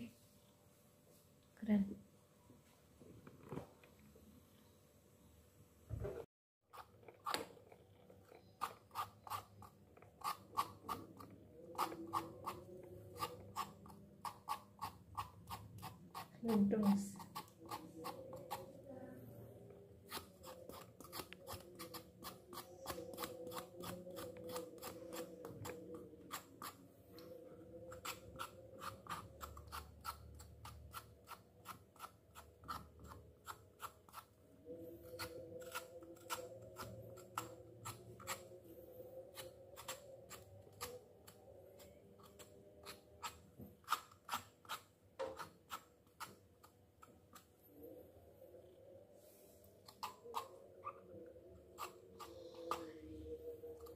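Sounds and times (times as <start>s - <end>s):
knife scraping hide: 6.7s - 18.7s, 20.0s - 38.6s.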